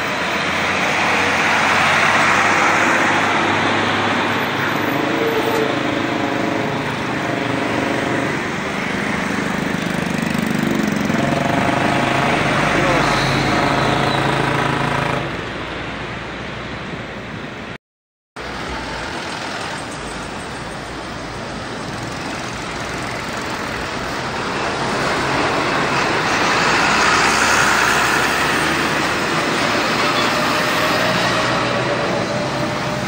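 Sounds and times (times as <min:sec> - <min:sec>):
engine hum: 0:00.0 - 0:17.7
trucks passing: 0:00.0 - 0:17.8, 0:18.4 - 0:33.0.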